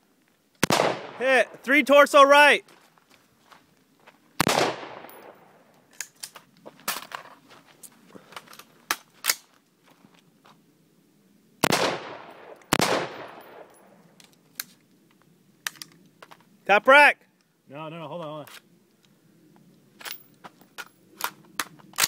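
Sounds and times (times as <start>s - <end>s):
rifle shots with echo: 0.6s - 1.6s, 4.4s - 5.7s, 11.6s - 14.0s.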